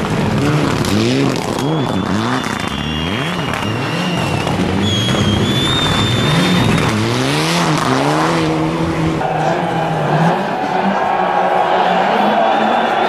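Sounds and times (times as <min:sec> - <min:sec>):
rally car engine revving: 0:00.0 - 0:13.0
thin high whistle: 0:01.6 - 0:06.9.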